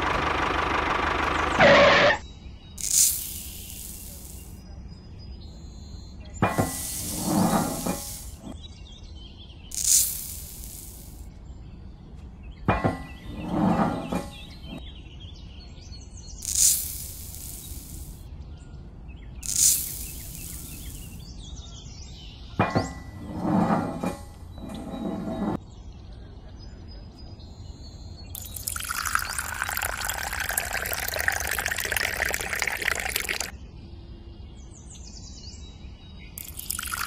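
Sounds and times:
sand and cement pouring: 2.8 - 4.6, 6.5 - 8.6, 9.7 - 11.2, 16.4 - 18.2, 19.4 - 21.2, 28.4 - 33.5
metal scoop scraping plastic rim: 6.5 - 8.5, 13.1 - 14.8, 22.8 - 25.6.

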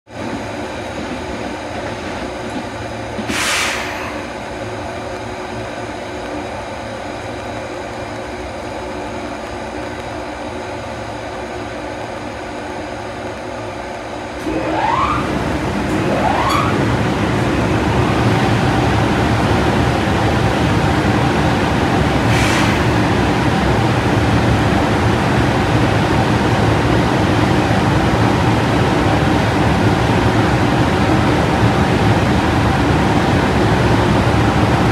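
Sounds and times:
electric locomotive humming: 0.1 - 34.9
cooling blowers whine and rush: 0.2 - 34.9
short air hiss: 3.3 - 4.3, 22.3 - 22.9.

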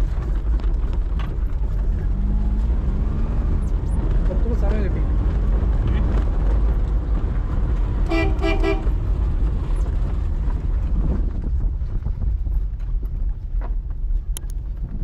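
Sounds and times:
car engine and road rumble: 0.0 - 15.0
car horn toots: 8.0 - 9.0.

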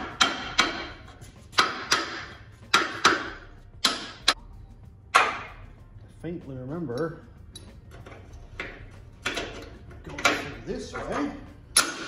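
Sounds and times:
hammer striking metal: 0.0 - 4.4, 5.1 - 5.6, 8.6 - 12.0.

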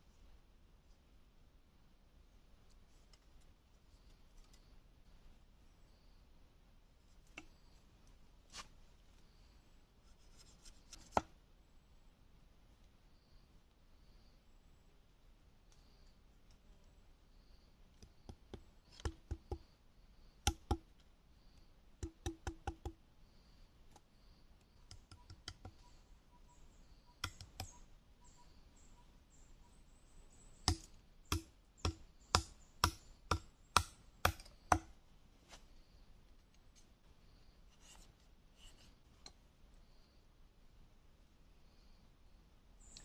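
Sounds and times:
knife chopping bamboo on log: 18.3 - 19.6, 20.5 - 20.8, 22.0 - 23.0, 27.2 - 27.7, 30.7 - 34.9.

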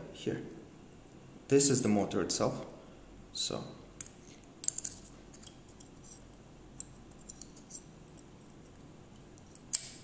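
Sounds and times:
metal tool clicks and scratches: 4.6 - 10.0.

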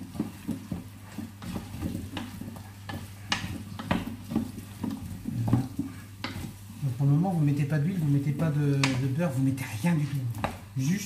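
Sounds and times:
food sizzling: 0.0 - 11.0
utensil scraping metal pot: 0.0 - 11.0.

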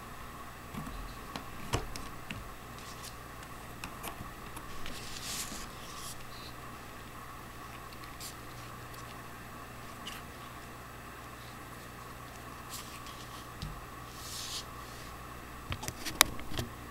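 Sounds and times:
scraping rustle: 0.8 - 3.3, 3.9 - 6.5, 12.6 - 15.2
hands rubbing plastic: 0.8 - 6.6, 7.6 - 10.7, 11.5 - 15.2.

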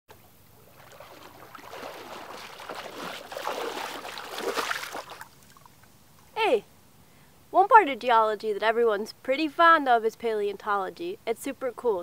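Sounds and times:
wading through shallow water: 0.1 - 5.8.

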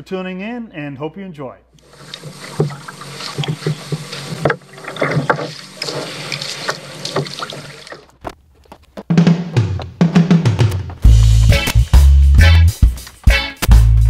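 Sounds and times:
water splashing around kayak: 1.8 - 8.2
drum-led music: 9.1 - 14.0.

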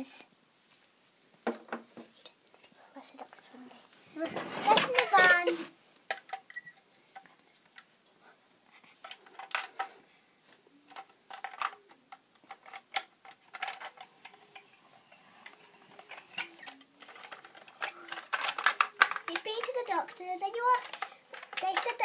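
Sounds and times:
hard plastic toy clicks and taps: 16.0 - 22.0.

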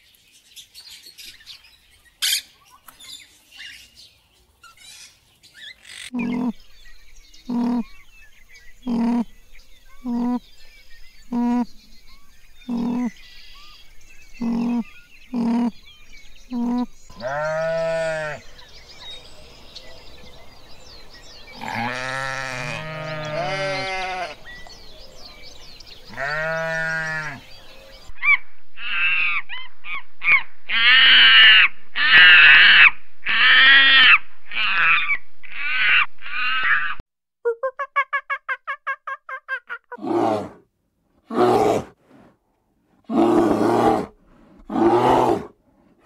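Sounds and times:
farm animals bleating: 5.9 - 6.6, 7.5 - 7.9, 8.9 - 9.3, 10.0 - 10.5, 12.7 - 13.2, 14.4 - 15.8, 16.5 - 18.5, 21.6 - 24.6, 26.1 - 27.5.

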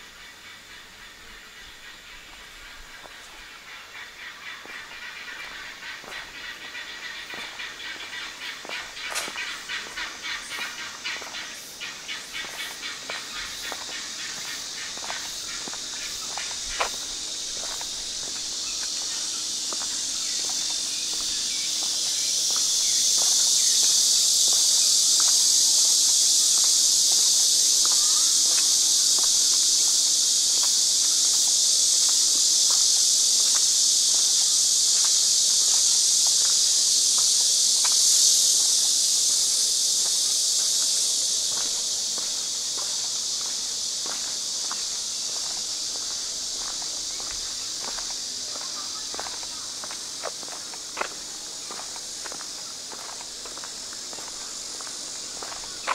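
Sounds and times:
high-pitched insect chorus: 0.0 - 55.9
footsteps walking: 4.6 - 11.5, 12.4 - 23.4, 40.0 - 55.9.

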